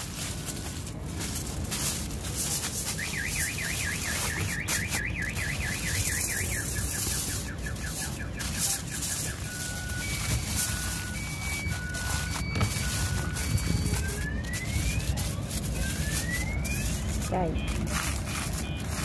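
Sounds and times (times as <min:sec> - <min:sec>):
aluminium foil crinkling: 0:00.0 - 0:19.0
electronic alarm warbling: 0:02.9 - 0:17.7
alternating high and low beeps: 0:02.9 - 0:17.8.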